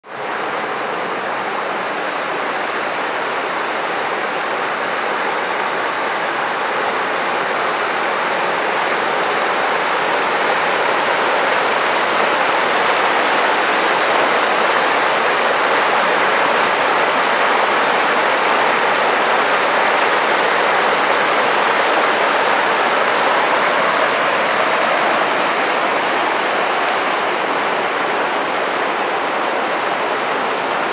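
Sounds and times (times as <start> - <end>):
river rushing over stones: 0.1 - 30.9.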